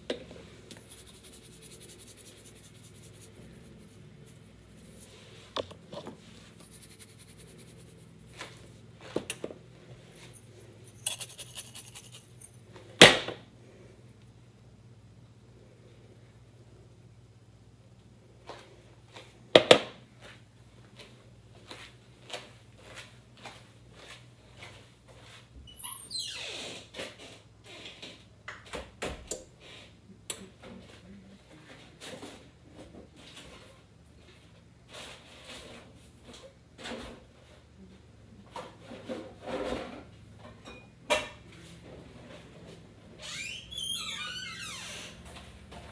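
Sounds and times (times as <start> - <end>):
soft rustling: 0.8 - 8.8.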